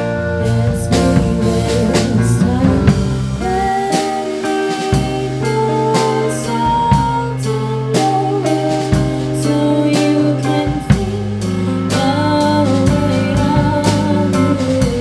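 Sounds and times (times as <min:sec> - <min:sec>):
live rock band playing: 0:00.0 - 0:15.0
woman singing: 0:00.0 - 0:15.0.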